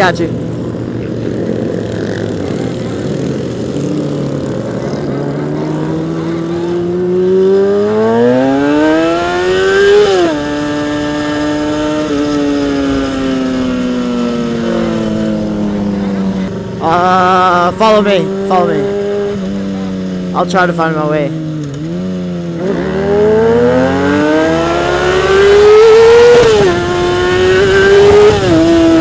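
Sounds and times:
motorcycle engine accelerating: 0.0 - 29.0.

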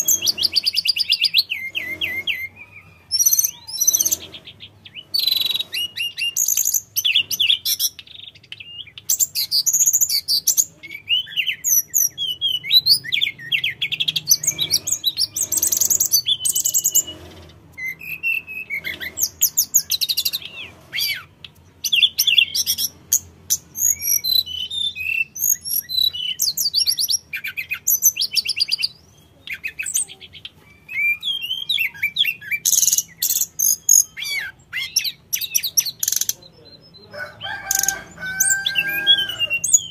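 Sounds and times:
bird singing whistles and trills: 0.0 - 39.9.

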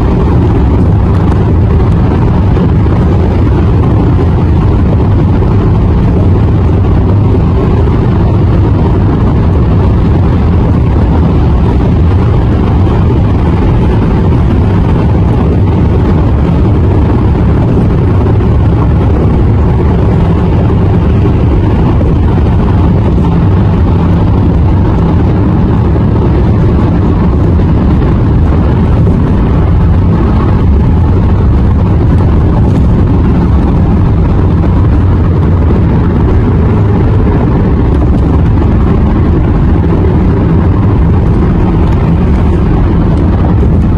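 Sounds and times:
tyre and road noise inside car: 0.0 - 43.9.

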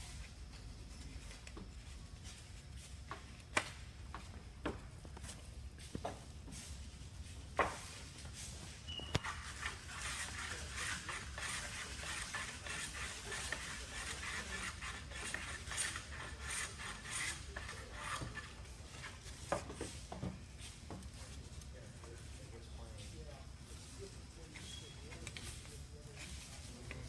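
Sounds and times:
wooden strips rubbed and scraped: 7.6 - 22.4.

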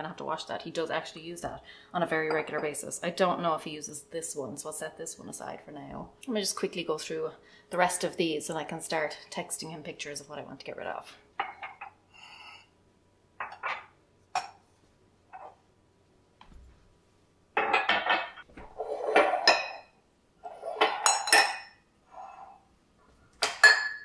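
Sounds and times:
ceramic mugs clinking: 11.4 - 12.7, 13.4 - 14.6, 17.6 - 20.0, 20.6 - 22.4, 23.4 - 24.0.

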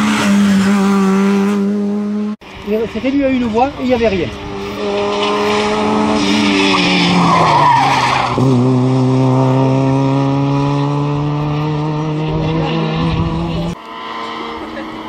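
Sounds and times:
rally car engine passing: 0.0 - 15.0
tyres squealing: 4.8 - 8.4.

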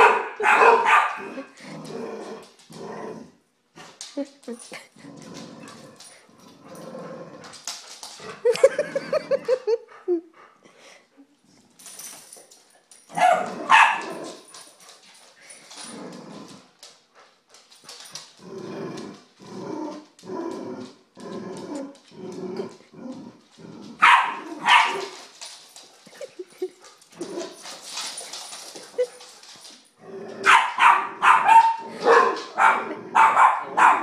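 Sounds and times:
dogs barking: 0.0 - 1.4, 13.2 - 14.1, 24.0 - 25.1, 30.4 - 34.0
dogs growling: 1.1 - 4.1, 4.7 - 9.8, 13.4 - 34.0.

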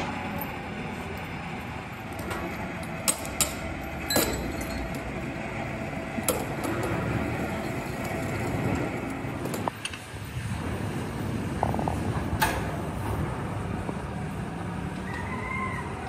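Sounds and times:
factory machinery noise: 0.0 - 16.0
sharp metallic clinks: 3.1 - 5.2.

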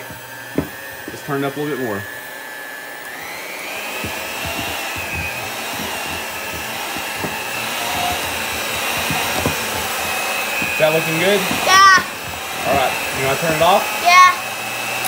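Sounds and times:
beaters knocking on glass bowl: 0.0 - 1.2, 4.0 - 13.6
electric hand mixer whining: 0.0 - 15.0.

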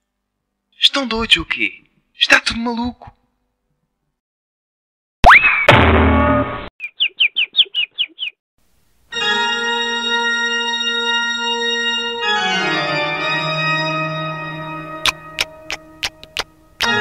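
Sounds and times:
chirping sound effects: 6.2 - 8.4
organ chord: 9.1 - 17.0.

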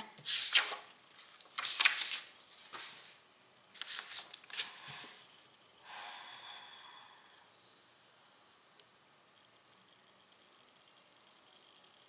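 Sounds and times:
paper rustling and sliding: 0.2 - 3.2, 3.8 - 5.3.

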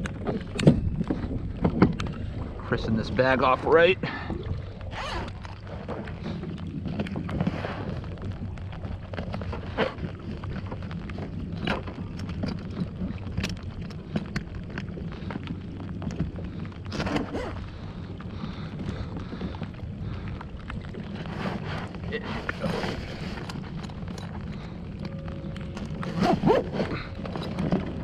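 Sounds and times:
wind rumble on microphone: 0.0 - 28.0.

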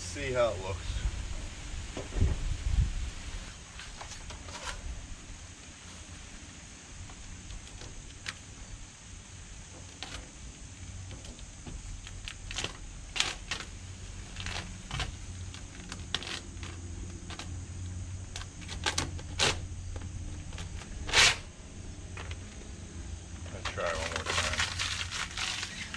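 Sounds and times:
steady low hum: 0.0 - 25.9
vinyl wrap crinkling: 23.5 - 25.9.

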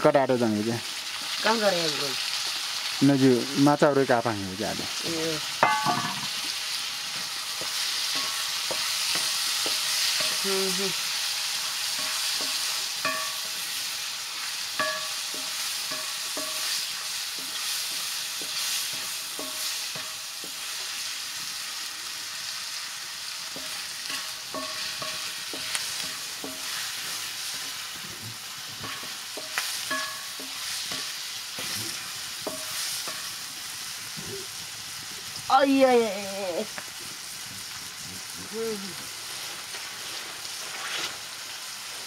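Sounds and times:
mushrooms sizzling in a wok: 0.0 - 42.0
wok ringing: 5.4 - 33.8
spatula scraping and knocking pan: 5.6 - 10.5, 11.4 - 21.6, 23.4 - 33.6.

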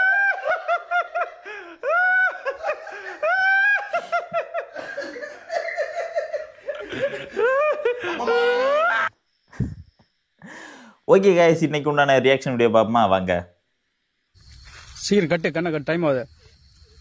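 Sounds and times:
high-pitched laughter: 0.0 - 9.1.

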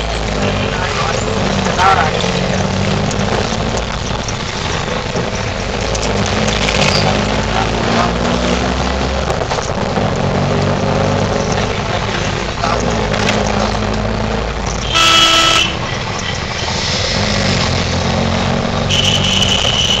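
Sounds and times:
auto-rickshaw engine running: 0.0 - 20.0
higher-pitched horn: 14.8 - 15.9, 18.9 - 20.0
vehicle horn honking: 14.8 - 16.0, 18.9 - 20.0.

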